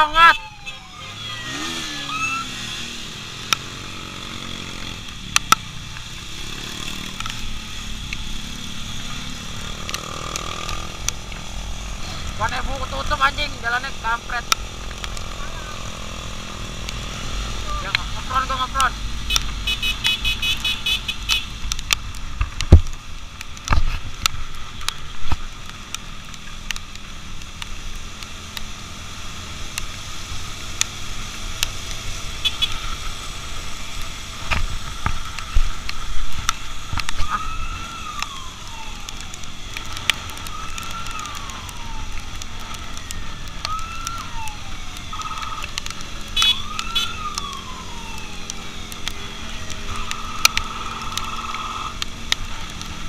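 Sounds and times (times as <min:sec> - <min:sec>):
electronic siren sweeps: 0:00.0 - 0:03.0, 0:40.4 - 0:45.8, 0:46.4 - 0:52.0
motorcycle wind and road noise: 0:00.0 - 0:53.0.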